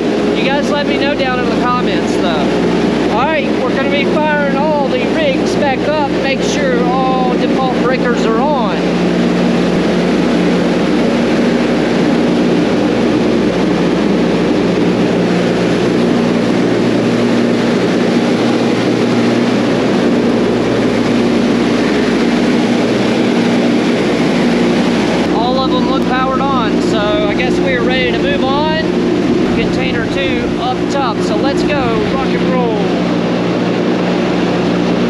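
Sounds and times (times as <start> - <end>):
cooling fans roaring: 0.0 - 35.0
low hum: 0.0 - 35.0.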